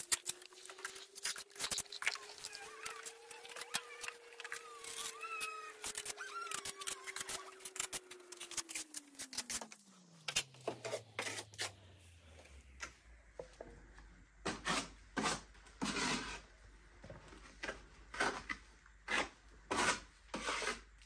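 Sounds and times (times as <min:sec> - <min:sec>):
trowel scraping mortar: 0:10.7 - 0:11.8, 0:14.5 - 0:16.5, 0:17.6 - 0:20.9.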